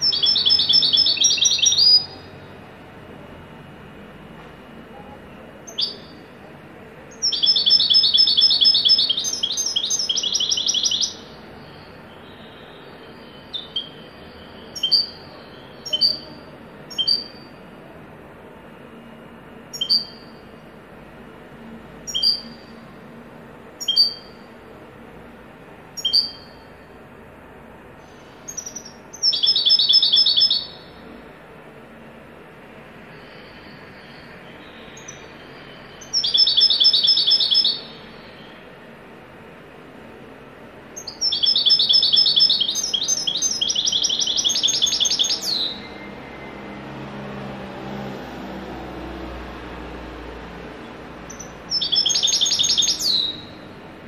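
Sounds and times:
goldfinch singing: 0.0s - 2.3s, 5.7s - 6.2s, 7.1s - 17.5s, 19.7s - 20.4s, 22.1s - 22.7s, 23.8s - 24.4s, 26.0s - 26.6s, 28.5s - 31.0s, 34.0s - 38.6s, 41.0s - 46.1s, 51.2s - 53.7s.

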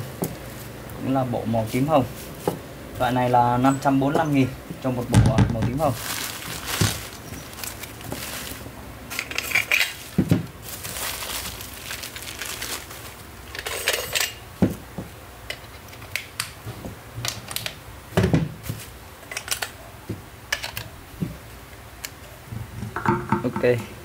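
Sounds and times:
rustling: 5.7s - 14.0s.

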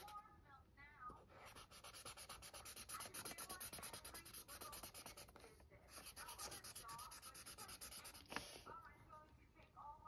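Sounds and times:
marker scratching on paper: 0.0s - 0.2s, 1.2s - 8.7s.

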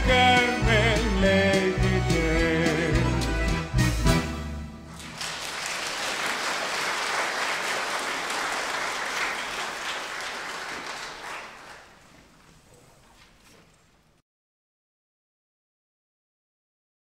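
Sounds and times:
audience applauding: 4.9s - 12.7s.

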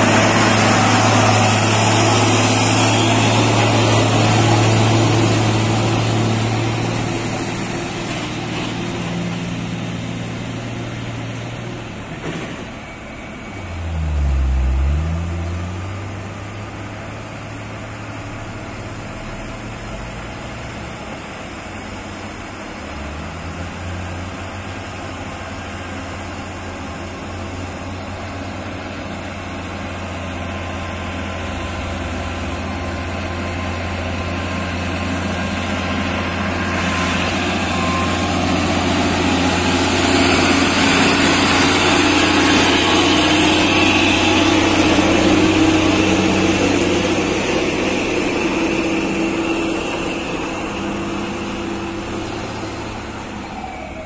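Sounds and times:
diesel truck engines pulling: 0.0s - 54.0s.

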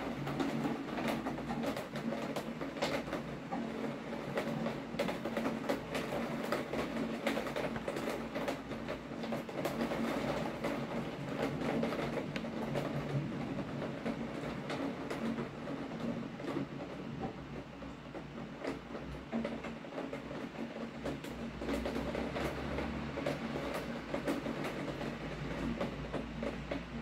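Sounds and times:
rain drops tapping: 0.0s - 27.0s.

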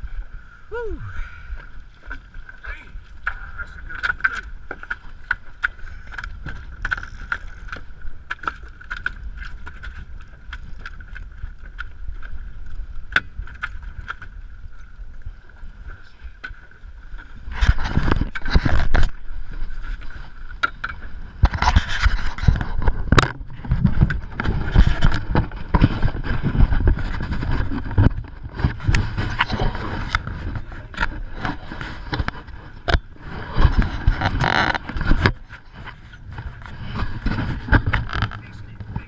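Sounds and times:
camera housing scraping on clothing: 17.5s - 19.2s, 21.4s - 39.0s
low microphone rumble: 21.0s - 39.0s.

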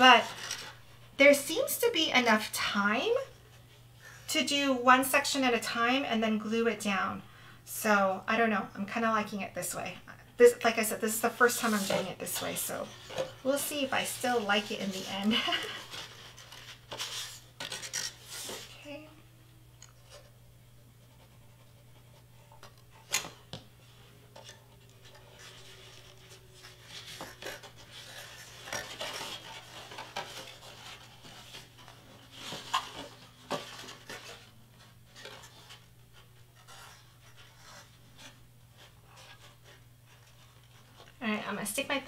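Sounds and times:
paper rustling and scraping: 0.0s - 0.9s, 11.2s - 18.9s, 21.0s - 41.6s
faint low hum: 0.0s - 42.0s.

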